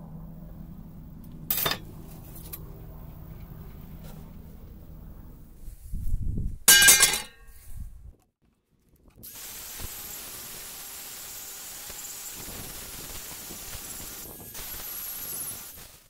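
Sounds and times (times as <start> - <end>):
metallic clang with ringing: 6.7 - 7.5.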